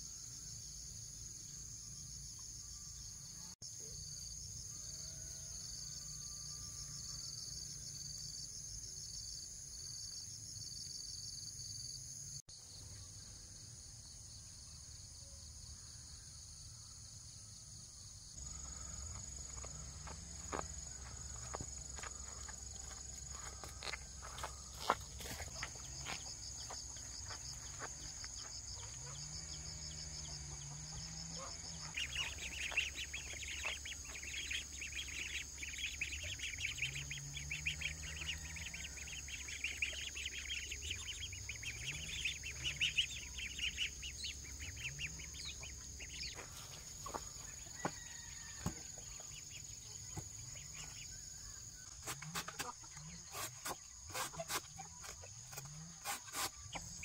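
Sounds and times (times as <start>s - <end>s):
high-pitched insect drone: 18.4s - 48.7s
chickens clucking: 18.5s - 48.8s, 51.9s - 57.0s
rapid chirping: 24.2s - 46.4s.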